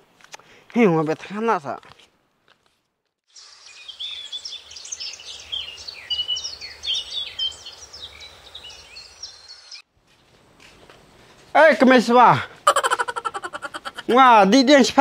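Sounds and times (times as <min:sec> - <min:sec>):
small birds chirping and whistling: 0:03.3 - 0:09.8.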